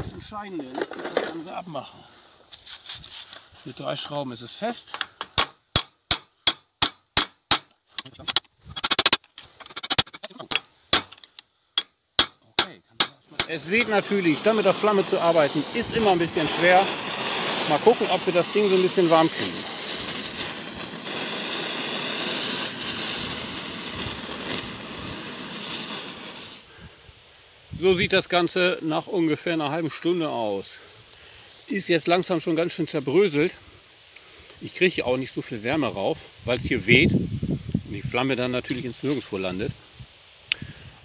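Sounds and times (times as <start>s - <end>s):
blowtorch hissing: 13.3s - 27.0s.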